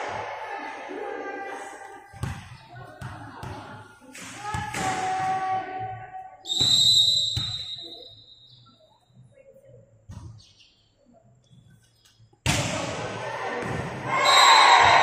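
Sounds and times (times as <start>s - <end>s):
referee's whistle: 6.4s - 8.6s, 14.2s - 15.0s
spectators shouting: 13.2s - 15.0s.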